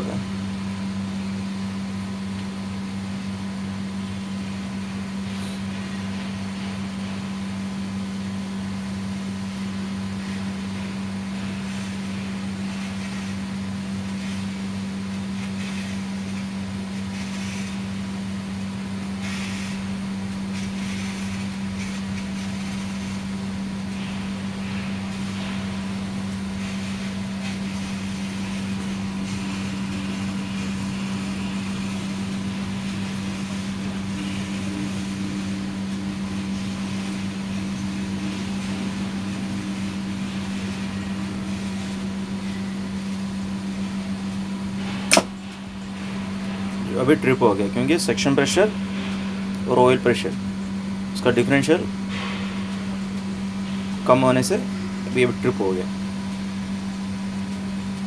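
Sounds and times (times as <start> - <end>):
low electrical hum: 0.0 - 58.0
pressure switch click: 45.1 - 45.3.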